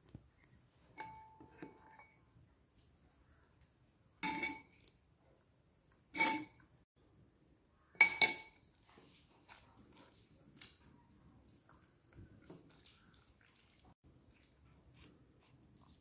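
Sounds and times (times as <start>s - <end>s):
metal spoon clinking on ceramic dish: 1.0s - 2.2s, 4.2s - 4.8s, 6.2s - 6.6s, 8.0s - 8.7s.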